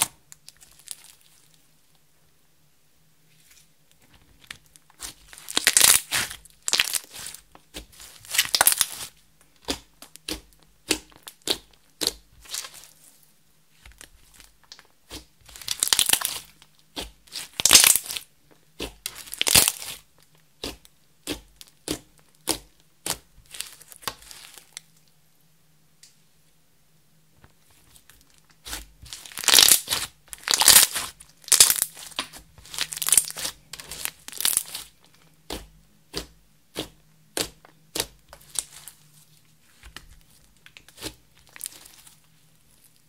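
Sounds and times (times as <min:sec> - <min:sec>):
slime squelching and popping: 0:04.5 - 0:13.1, 0:13.8 - 0:24.8, 0:27.9 - 0:39.0, 0:39.7 - 0:42.2.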